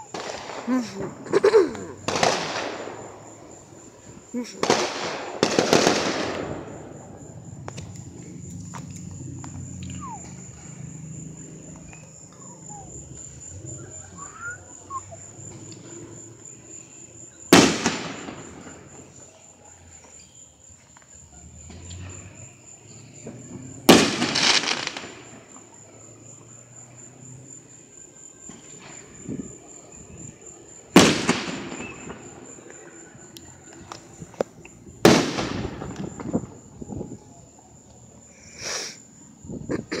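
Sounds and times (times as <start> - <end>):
fireworks bursting with crackle: 0.0 - 10.6, 17.5 - 19.2, 23.2 - 25.7, 28.5 - 32.8, 33.7 - 36.7.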